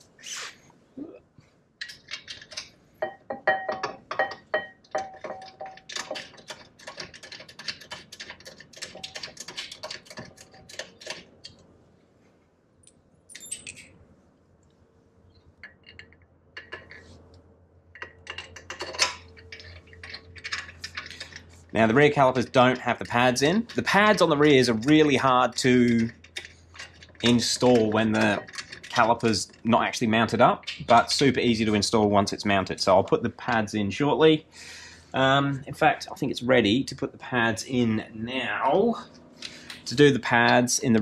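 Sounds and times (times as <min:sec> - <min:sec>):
metal clinking: 0:01.8 - 0:07.4, 0:17.9 - 0:29.4
hand tools clicking on metal: 0:01.8 - 0:11.6, 0:17.9 - 0:29.7.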